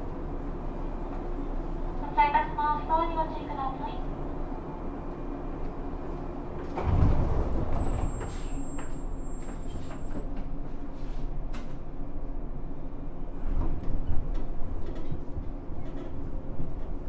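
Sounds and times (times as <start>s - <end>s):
low hum of standing train: 0.0s - 17.0s
air-operated sliding doors closing: 6.5s - 10.4s.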